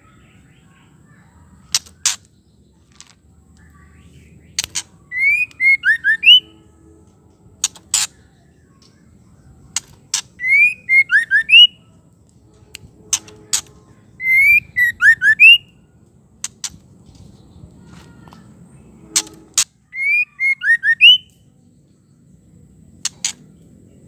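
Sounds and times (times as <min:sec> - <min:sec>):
bird whistling: 0:05.1 - 0:06.5, 0:10.2 - 0:11.8, 0:14.2 - 0:15.8, 0:19.9 - 0:21.4.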